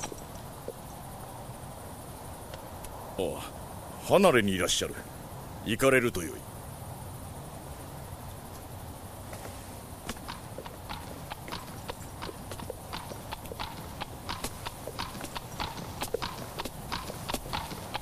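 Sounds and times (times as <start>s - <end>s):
horse hooves clip-clopping on hard floor: 10.1s - 18.0s.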